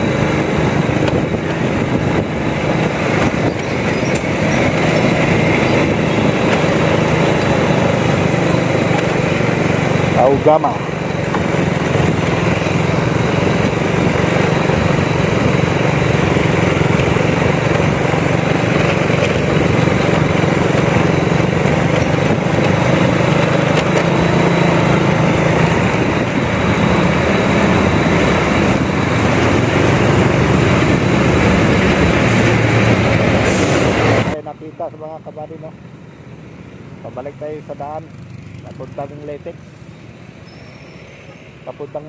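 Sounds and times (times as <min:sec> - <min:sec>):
motorcycle engine running: 0:00.0 - 0:40.6
wind and road noise: 0:00.0 - 0:42.0.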